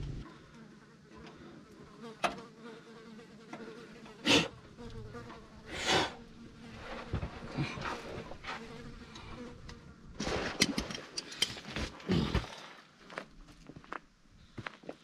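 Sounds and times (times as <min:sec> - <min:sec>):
fly buzzing: 0:00.1 - 0:10.0.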